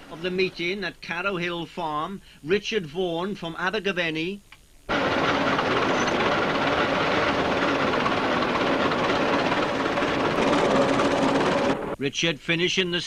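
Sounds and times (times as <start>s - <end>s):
tractor engine running: 0.0s - 0.8s, 4.9s - 12.0s.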